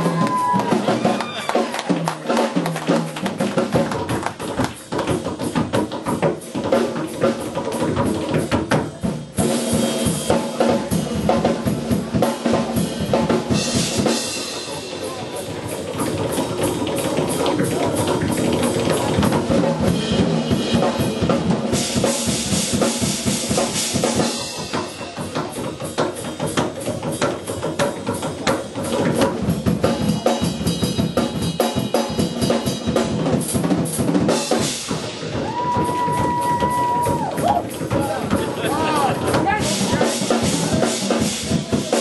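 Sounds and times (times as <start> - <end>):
drum kit playing: 0.0 - 42.0.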